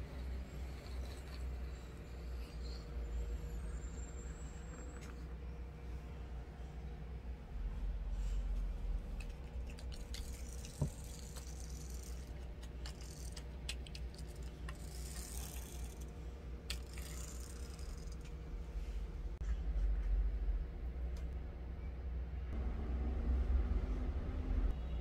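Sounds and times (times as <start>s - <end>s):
toy car wheels rattling and whirring: 9.9s - 16.1s, 16.7s - 18.2s.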